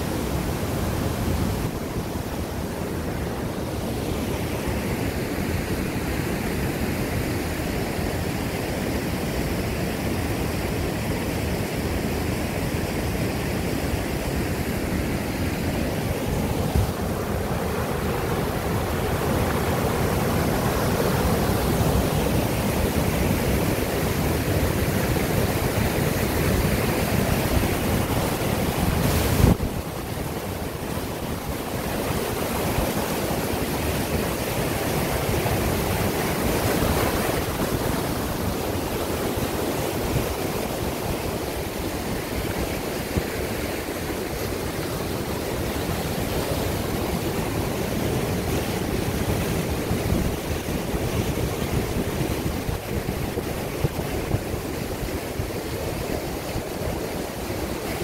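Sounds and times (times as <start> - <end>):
waterfall rushing through rocks: 0.0 - 58.0.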